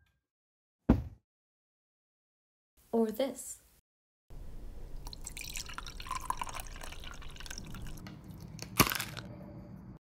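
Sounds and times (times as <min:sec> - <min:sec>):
water pouring into a mug: 0:05.0 - 0:08.6.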